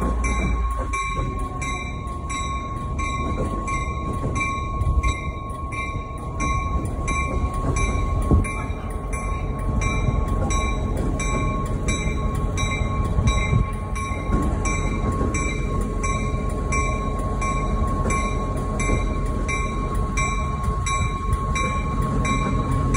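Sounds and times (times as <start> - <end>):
diesel locomotive engine rumbling: 0.0 - 22.9
locomotive bell ringing: 0.0 - 22.9.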